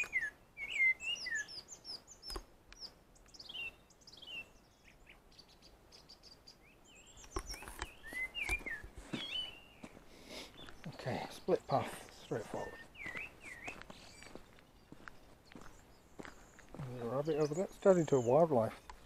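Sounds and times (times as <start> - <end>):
songbird singing: 0.0 - 19.0.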